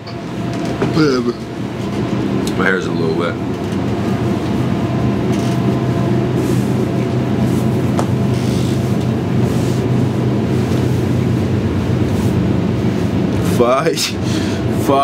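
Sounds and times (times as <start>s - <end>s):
fan humming: 0.0s - 15.0s.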